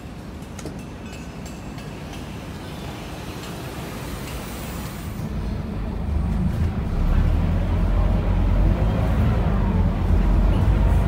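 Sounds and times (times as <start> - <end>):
bus diesel engine rumble: 3.7 - 11.0.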